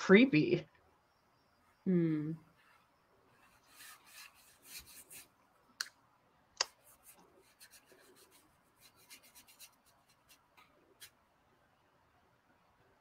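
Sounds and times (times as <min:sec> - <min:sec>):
ink brush scratching paper: 0:02.6 - 0:05.4, 0:06.8 - 0:11.2.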